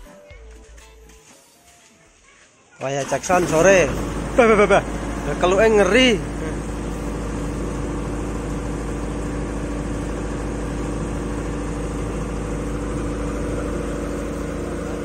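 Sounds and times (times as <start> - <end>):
diesel generator running: 2.9 - 15.0.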